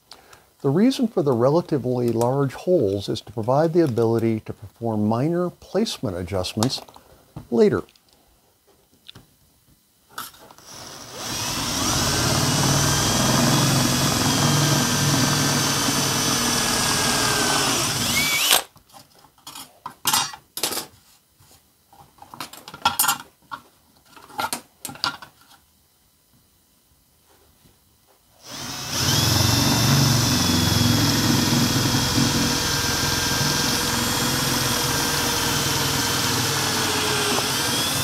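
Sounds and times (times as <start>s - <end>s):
cordless drill boring: 10.6s - 18.6s, 28.4s - 38.0s.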